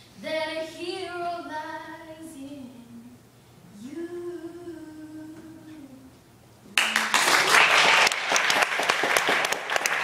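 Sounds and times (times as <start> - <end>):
girl singing: 0.1 - 6.2
audience applause: 6.8 - 10.0.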